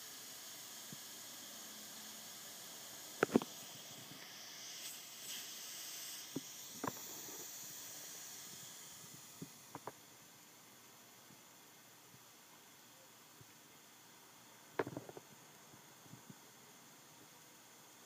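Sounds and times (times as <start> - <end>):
air hissing from leaking valve: 0.0 - 10.0.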